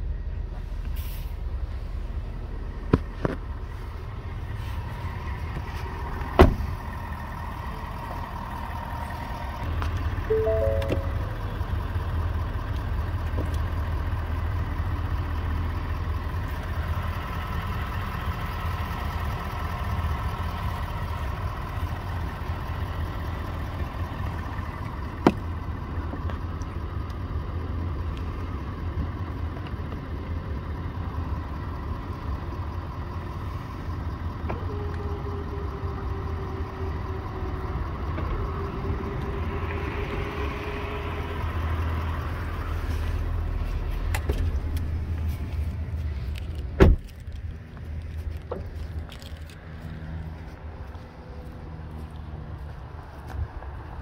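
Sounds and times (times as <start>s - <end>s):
pickup engine running: 0.0s - 54.0s.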